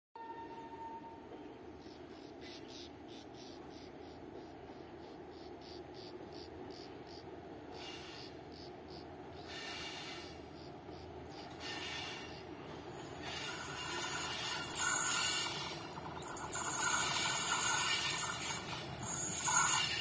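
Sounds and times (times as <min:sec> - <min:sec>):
low background noise: 0:00.3 - 0:11.6
insects chirping: 0:01.8 - 0:20.0.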